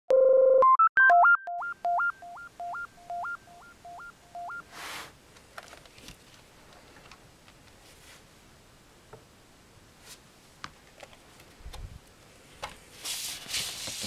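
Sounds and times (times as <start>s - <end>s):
short synth beeps: 0.1s - 4.6s.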